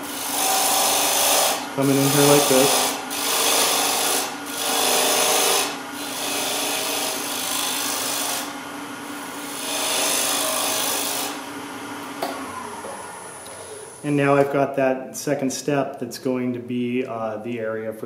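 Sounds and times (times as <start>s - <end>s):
bowl gouge cutting spinning wood: 0.0s - 8.6s, 9.2s - 14.2s
lathe humming: 0.0s - 14.2s.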